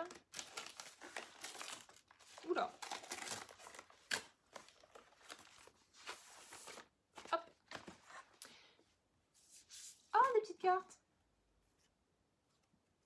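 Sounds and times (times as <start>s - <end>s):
paper packaging crinkling: 0.0s - 8.0s.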